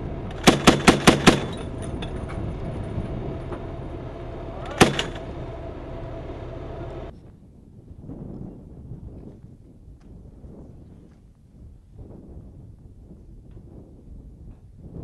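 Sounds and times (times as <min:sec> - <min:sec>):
tracked armoured vehicles running: 0:00.0 - 0:07.2
automatic gunfire: 0:00.3 - 0:01.6, 0:04.8 - 0:05.2
single gunshot: 0:04.8 - 0:05.2.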